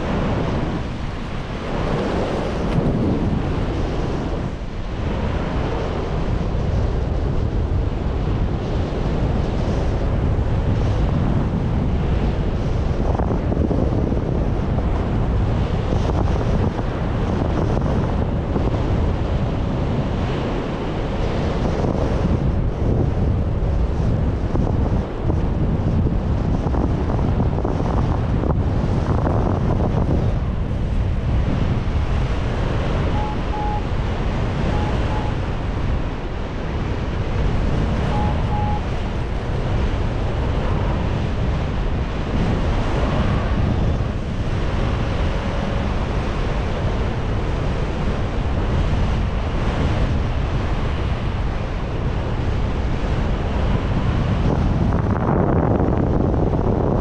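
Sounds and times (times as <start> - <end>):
wind buffeting microphone: 0.0 - 57.0
lower beep: 33.0 - 35.5, 38.0 - 39.0
short beeps: 33.0 - 35.5, 38.0 - 39.0.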